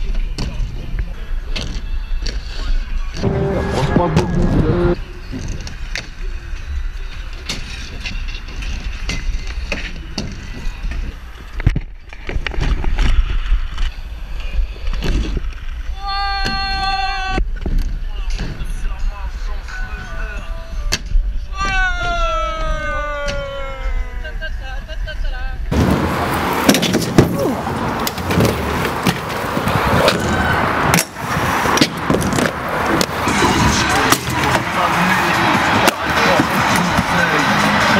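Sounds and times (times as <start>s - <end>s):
wheels rolling over concrete: 25.7s - 37.9s
skates knocking and scraping: 25.8s - 37.9s.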